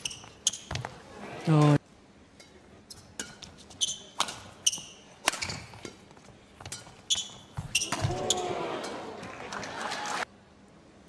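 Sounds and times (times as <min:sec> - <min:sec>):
shoes squeaking on court: 0:00.0 - 0:01.0, 0:02.9 - 0:08.6.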